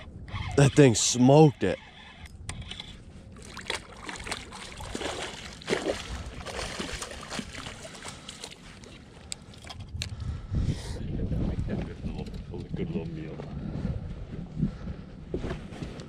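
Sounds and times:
water sloshing: 3.3s - 9.9s
fish splashing at water surface: 3.4s - 8.9s.

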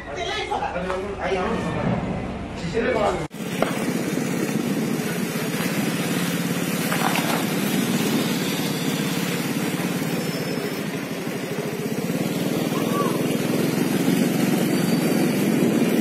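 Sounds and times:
small engine running: 3.3s - 16.0s.

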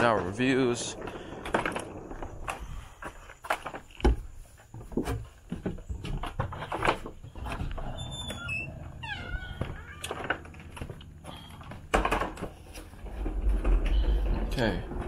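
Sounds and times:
footsteps on concrete and wood: 0.0s - 15.0s
vacuum cleaner knocking and rattling: 11.7s - 15.0s.

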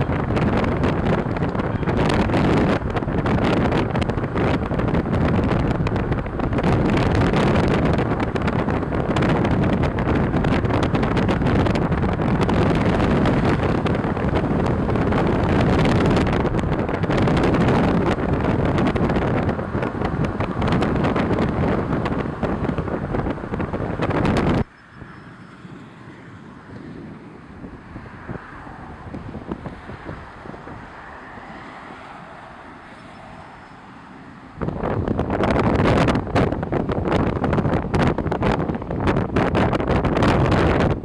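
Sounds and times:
strong wind buffeting microphone: 0.0s - 41.0s.

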